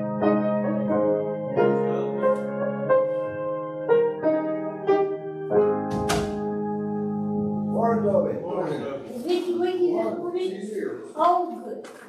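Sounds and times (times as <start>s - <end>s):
slow piano chords on keyboard: 0.0s - 8.5s.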